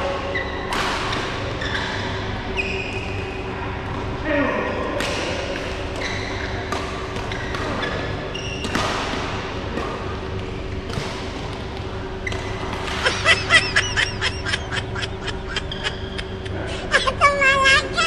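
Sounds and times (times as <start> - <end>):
sneaker squeaks on court floor: 1.5 - 3.2, 5.9 - 8.8
steady hum: 8.0 - 18.0.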